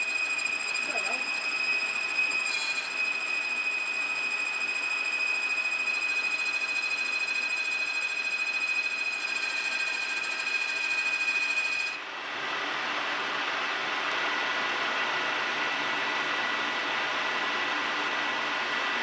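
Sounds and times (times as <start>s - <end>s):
metal lathe cutting: 0.0s - 12.0s.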